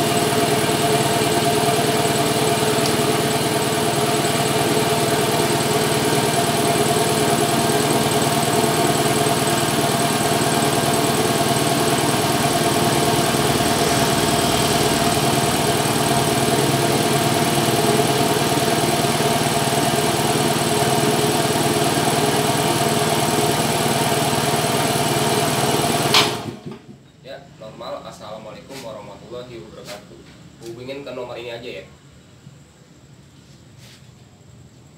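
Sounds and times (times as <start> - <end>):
air compressor running: 0.0 - 26.7.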